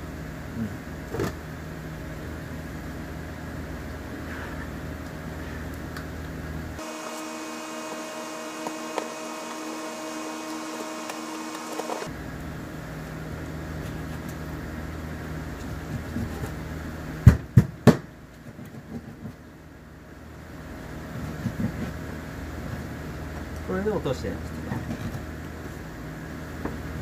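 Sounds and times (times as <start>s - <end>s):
machine hum: 0.0s - 17.2s.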